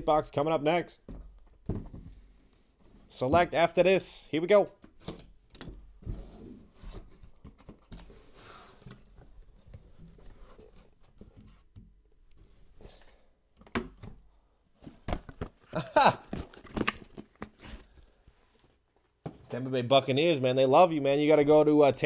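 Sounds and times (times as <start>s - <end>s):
hands handling cardboard box: 13.6s - 19.6s.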